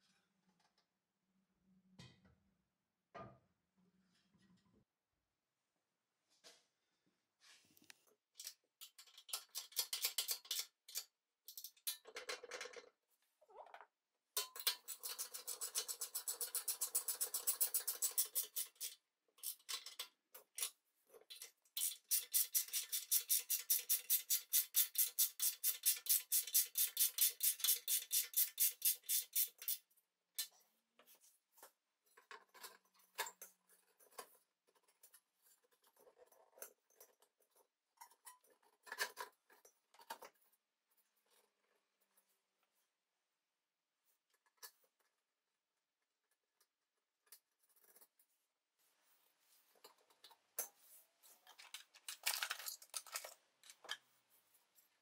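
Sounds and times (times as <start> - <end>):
metal parts clicking and rubbing: 51.3 - 54.1.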